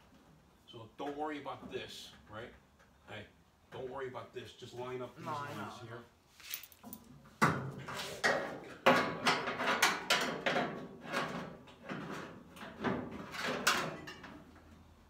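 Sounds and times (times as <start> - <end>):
metal panel knocking and scraping: 7.4 - 14.4.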